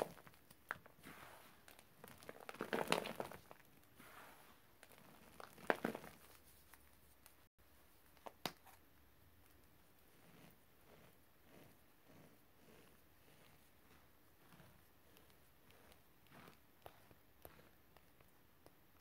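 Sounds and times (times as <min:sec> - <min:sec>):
dry powder crunching and crumbling: 0:00.0 - 0:06.8, 0:10.2 - 0:18.4.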